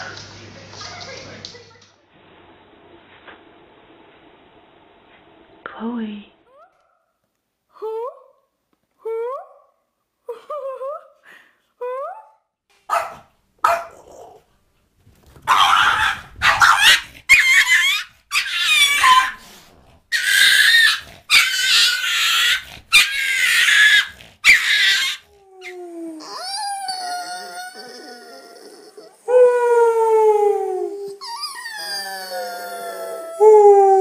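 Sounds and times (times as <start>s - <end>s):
dog barking and growling: 12.2s - 14.5s, 15.4s - 29.3s
puppies yipping: 20.1s - 25.2s.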